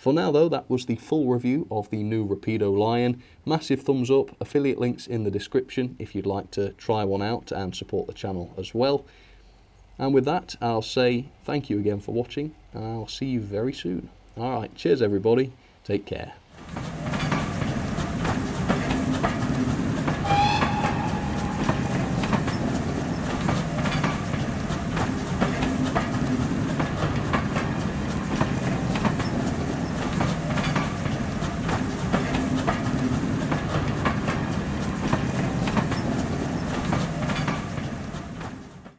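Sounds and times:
train running noise: 16.5 - 38.9
train wheels clicking over rail joints: 16.5 - 38.9
train wheel squeal: 18.9 - 25.1, 35.6 - 38.7.

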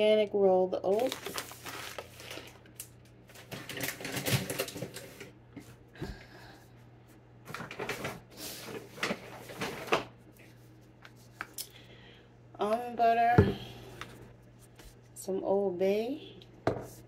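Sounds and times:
paper bag rustling: 0.9 - 5.3, 7.5 - 10.6.

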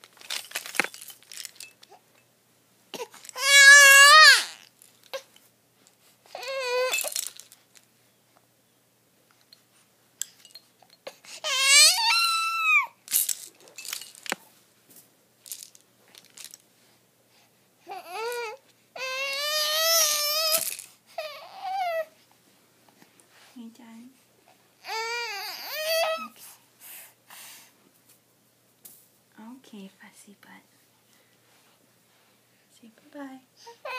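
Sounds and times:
baby crying: 3.0 - 4.6, 6.3 - 7.1, 11.4 - 13.0, 17.9 - 20.6, 21.2 - 22.1, 24.8 - 26.4, 33.7 - 33.9.

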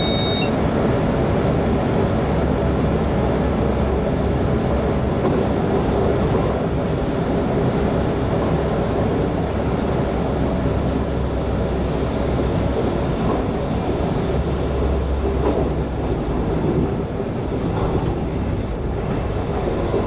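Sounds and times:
electric train rumble: 0.0 - 20.0.

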